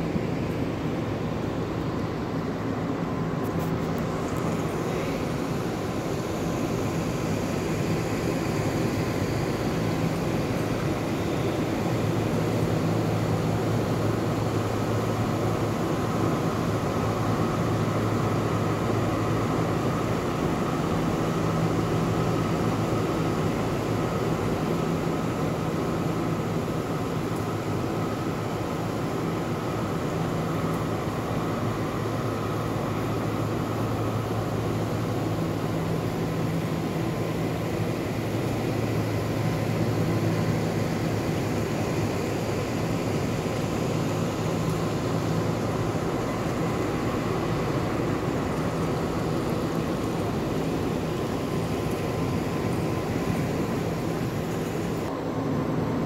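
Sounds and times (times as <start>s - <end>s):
ventilation fans running: 0.0s - 56.0s.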